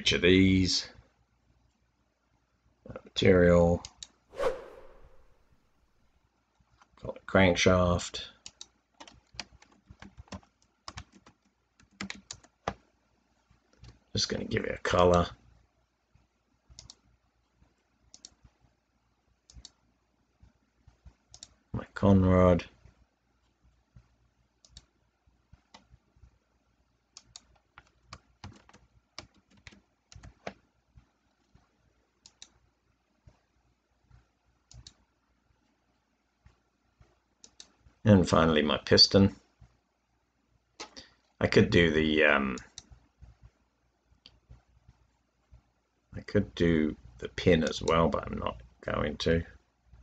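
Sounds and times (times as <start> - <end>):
typing on computer keyboard: 8.4 - 12.8, 27.2 - 30.6
mouse clicks: 16.7 - 17.0, 18.1 - 18.4, 19.5 - 19.8, 21.3 - 21.6, 24.6 - 24.9, 27.1 - 30.6, 32.2 - 32.6, 34.7 - 35.0, 37.4 - 37.8.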